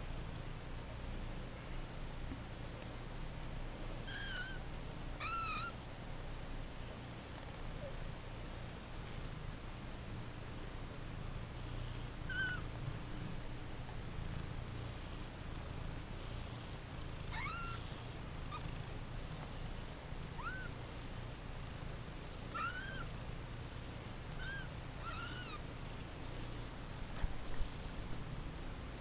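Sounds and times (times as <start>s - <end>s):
kittens mewing: 4.1s - 4.6s, 5.2s - 5.8s, 12.3s - 12.6s, 17.3s - 17.8s, 20.4s - 20.7s, 22.5s - 23.1s, 24.4s - 25.6s
cat purring: 6.9s - 9.6s, 11.1s - 28.4s.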